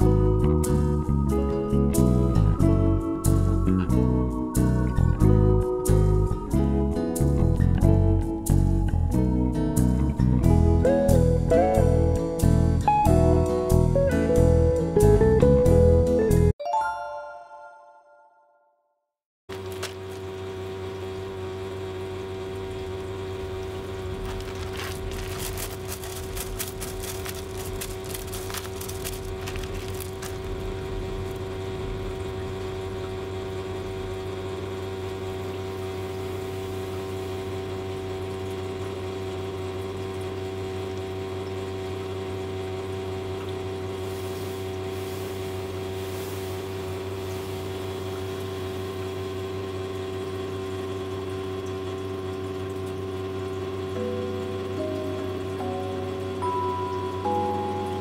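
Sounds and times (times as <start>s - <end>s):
small motor humming: 19.5s - 58.0s
kitten scratching in cat litter: 24.1s - 30.6s.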